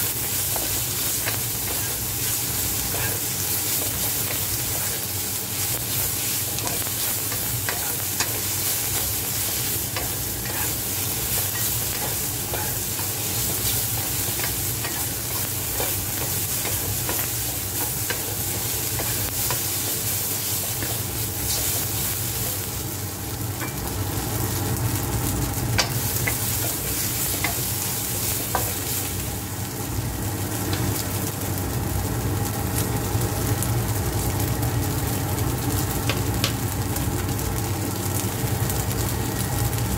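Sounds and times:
steady low hum: 0.0s - 31.0s
vegetables sizzling in wok: 0.0s - 39.9s.

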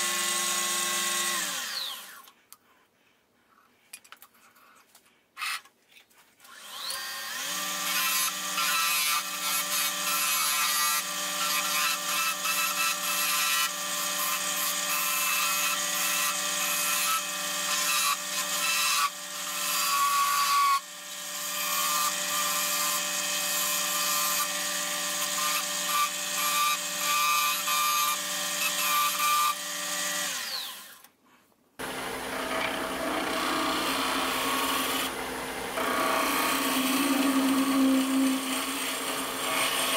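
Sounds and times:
wood lathe motor whine: 31.8s - 39.9s.

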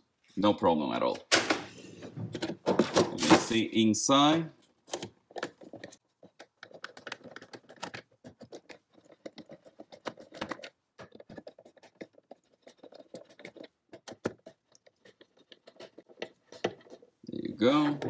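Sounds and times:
screwdriver clicking and scratching: 4.9s - 17.1s.

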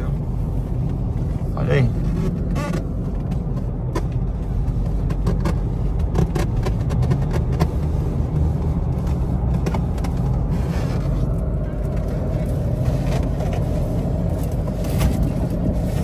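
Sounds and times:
engine and road rumble in cab: 0.0s - 16.0s.

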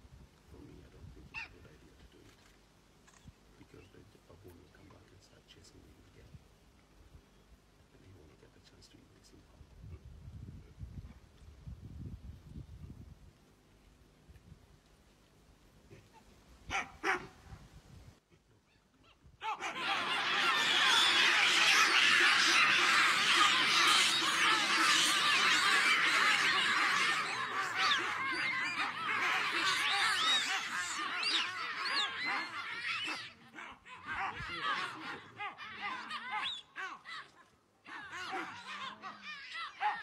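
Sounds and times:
baboons screaming and calling: 1.3s - 1.6s, 15.9s - 17.3s, 18.8s - 40.0s.

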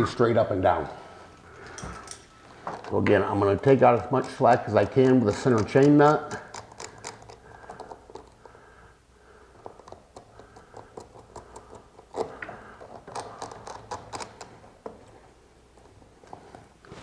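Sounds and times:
metal clicks and light scraping: 1.6s - 3.0s.

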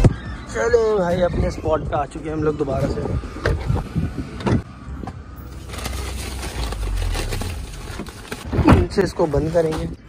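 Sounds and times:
car hum: 2.4s - 8.6s
plastic bags rustling: 5.4s - 10.0s.

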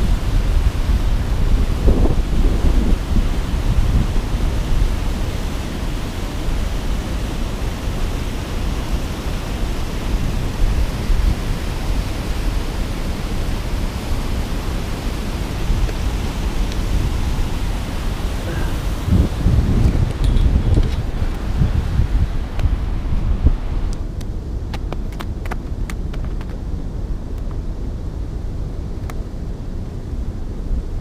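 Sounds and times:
turbulent water churning: 0.0s - 23.9s.

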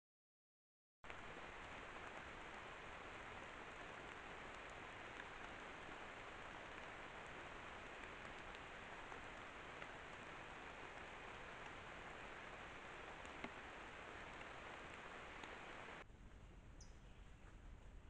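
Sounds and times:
faint microphone hiss: 1.1s - 18.0s
faint ticks: 3.8s - 16.0s.

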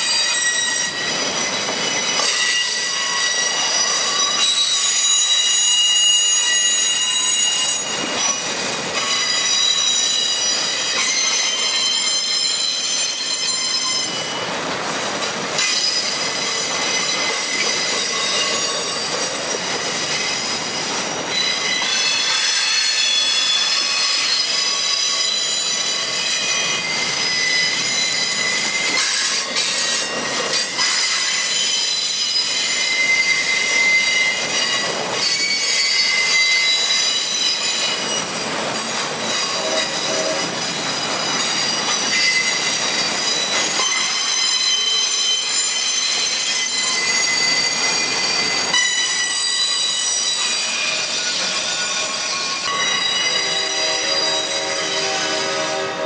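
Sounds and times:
rumble of freight cars: 0.0s - 56.0s
steel wheels squealing on rails: 0.0s - 56.0s.

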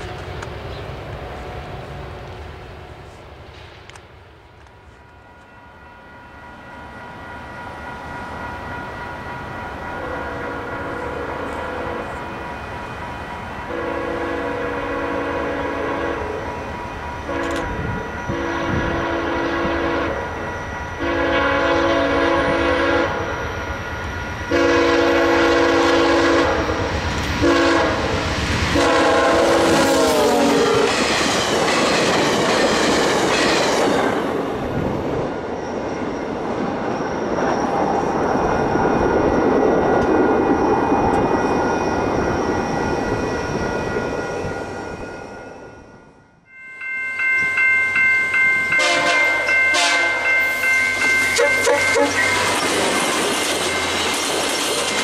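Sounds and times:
train wheels rushing on rails: 0.0s - 45.8s, 47.4s - 55.0s
train horn blasts: 9.9s - 12.4s, 13.7s - 16.6s, 17.2s - 23.5s, 24.5s - 31.0s, 48.8s - 50.6s, 51.3s - 52.6s.

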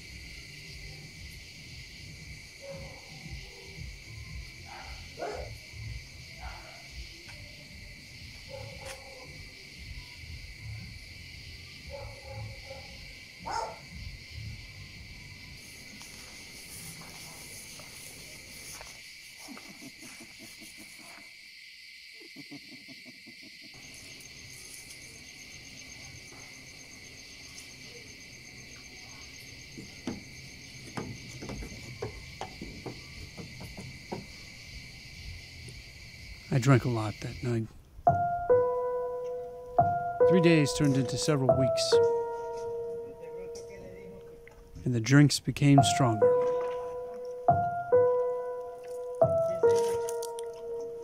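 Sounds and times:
crickets trilling: 0.0s - 51.0s
soft knocks: 29.8s - 34.6s.

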